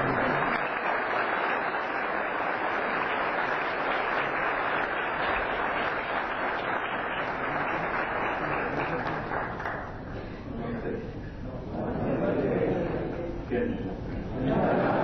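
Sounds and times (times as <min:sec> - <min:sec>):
crowd applauding: 0:00.0 - 0:10.1.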